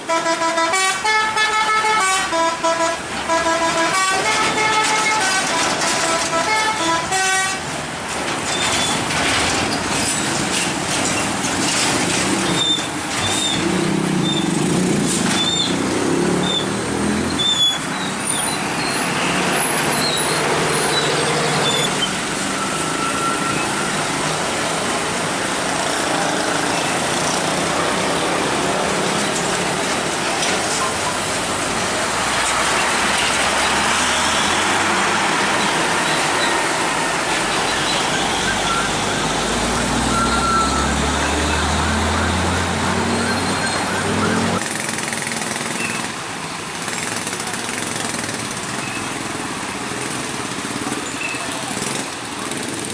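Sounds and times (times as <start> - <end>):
heavy road traffic: 0.0 - 52.9
loud engine passing: 13.6 - 17.4, 23.8 - 45.8.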